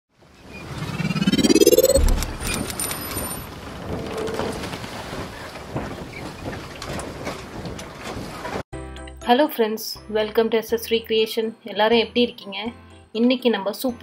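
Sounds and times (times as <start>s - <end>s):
rising sweep: 0.5s - 2.8s
scattered clicks: 1.7s - 3.2s.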